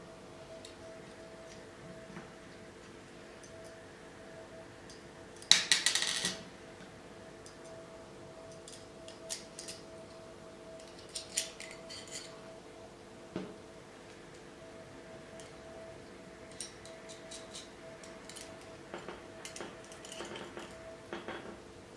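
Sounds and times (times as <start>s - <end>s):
faint steady hum: 0.0s - 21.9s.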